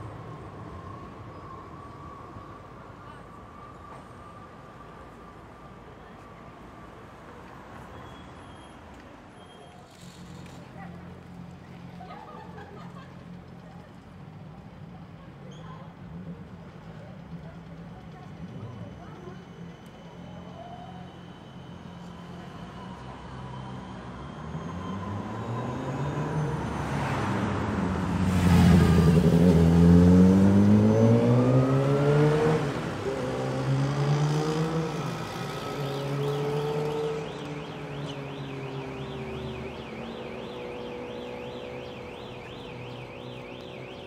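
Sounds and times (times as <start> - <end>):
cars passing: 22.2 - 44.0
warbling electronic alarm: 37.1 - 44.0.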